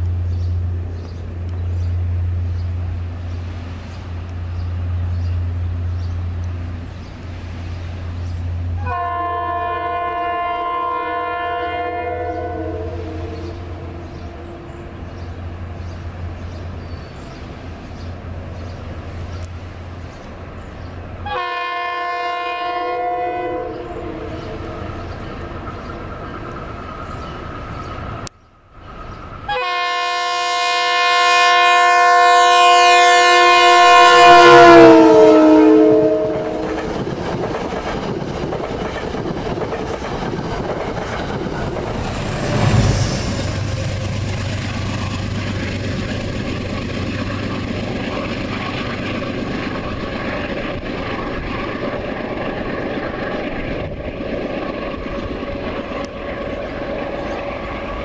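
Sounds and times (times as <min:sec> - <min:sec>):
diesel locomotive engine rumble: 0:00.0 - 0:58.0
train coaches rumbling by: 0:00.0 - 0:58.0
train air horn chord: 0:08.8 - 0:15.0, 0:21.2 - 0:24.9, 0:29.5 - 0:36.8.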